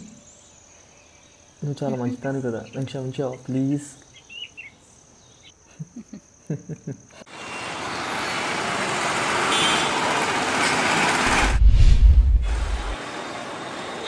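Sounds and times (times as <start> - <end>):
insect chirring: 0.0 - 7.2
busy road traffic: 7.3 - 11.6, 12.3 - 14.0.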